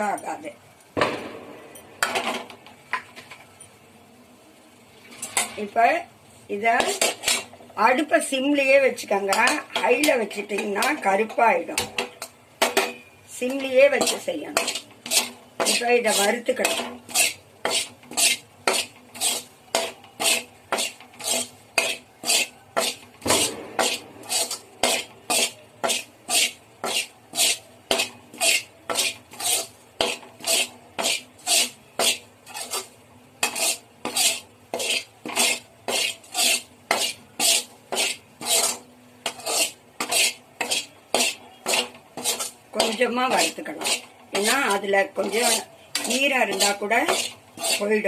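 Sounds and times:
utensil scraping pan: 5.0 - 5.8, 6.8 - 48.0.

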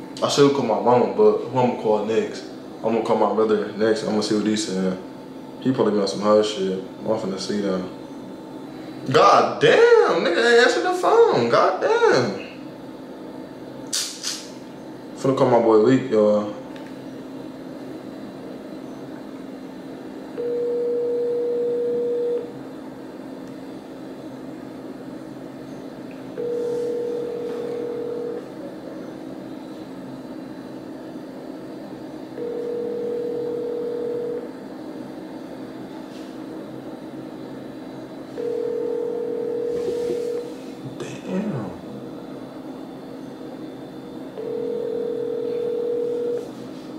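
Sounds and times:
faint steady hum: 0.0 - 46.9
telephone ringback tone: 20.4 - 22.5, 26.4 - 28.5, 32.4 - 34.5, 38.3 - 40.5, 44.4 - 46.5.

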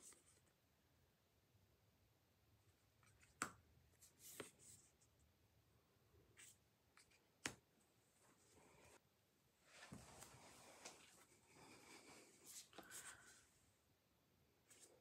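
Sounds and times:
soft card brush: 4.0 - 5.1, 6.3 - 7.2, 9.6 - 13.6, 14.6 - 15.0.

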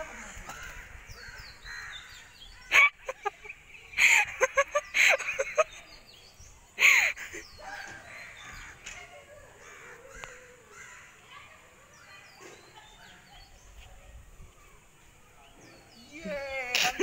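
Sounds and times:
crows cawing: 0.5 - 2.3, 9.6 - 11.2.

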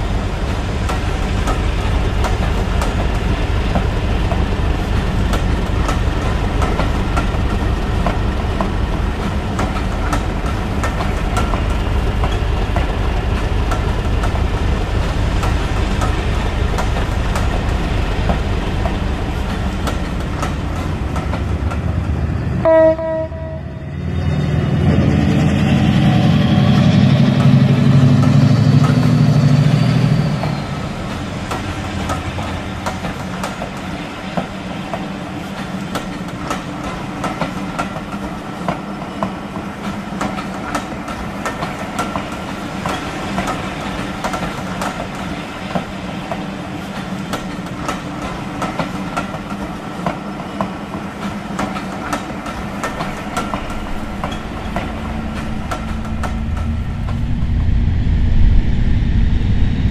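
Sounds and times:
diesel locomotive rumble: 0.0 - 35.0, 51.3 - 59.9
wheels clicking on track: 0.3 - 22.0, 26.2 - 57.2
train horn blast: 22.6 - 25.1
diesel engine drone: 54.6 - 59.9.

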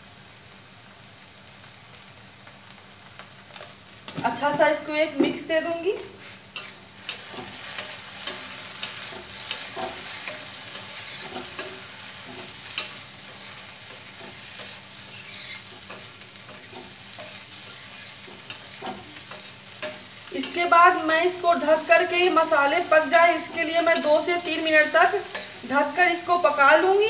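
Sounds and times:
food sizzling in pan: 0.0 - 27.0
spatula scraping metal pan: 6.6 - 25.7.

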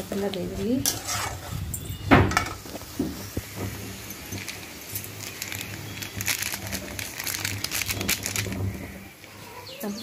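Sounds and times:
metal spatula scraping a pan: 0.6 - 1.8
spice packet crinkling: 3.9 - 8.9.

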